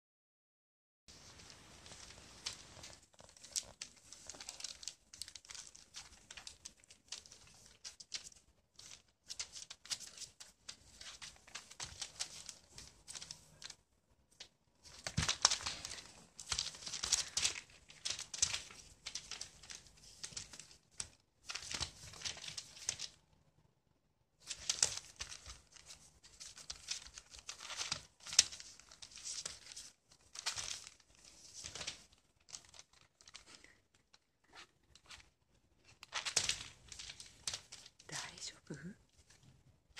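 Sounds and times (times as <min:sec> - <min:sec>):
newspaper crinkling and rustling: 0:01.1 - 0:23.2, 0:24.4 - 0:38.3.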